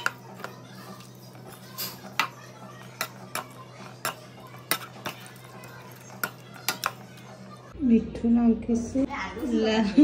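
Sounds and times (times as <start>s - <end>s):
potato masher clacking on metal pan: 0.0s - 7.6s.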